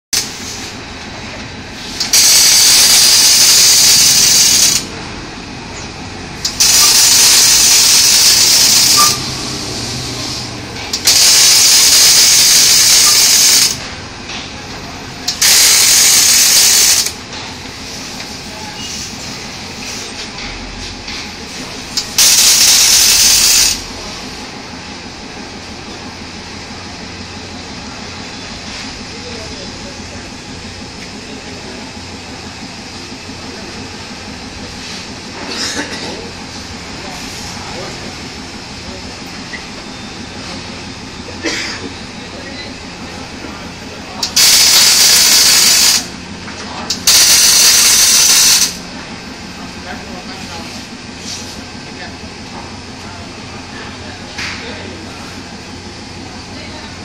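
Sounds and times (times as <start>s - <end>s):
welding arc hissing: 0.2s - 0.8s, 1.7s - 4.9s, 6.4s - 13.8s, 15.3s - 17.2s, 21.7s - 24.0s, 44.2s - 46.2s, 46.9s - 48.8s.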